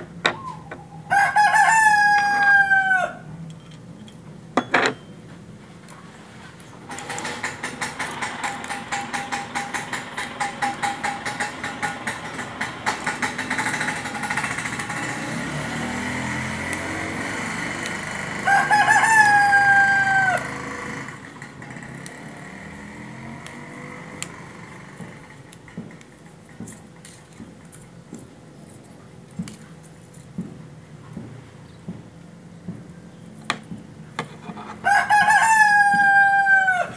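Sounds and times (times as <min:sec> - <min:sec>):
rooster crowing: 0:01.0 - 0:03.3, 0:17.0 - 0:21.1, 0:34.6 - 0:36.9
fast mechanical clicking: 0:06.9 - 0:18.4.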